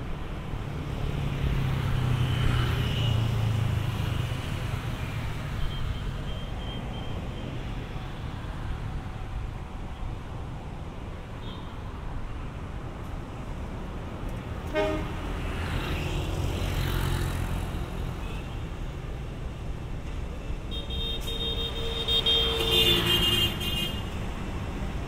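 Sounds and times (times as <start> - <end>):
car horn: 14.7 - 15.2, 20.7 - 24.1.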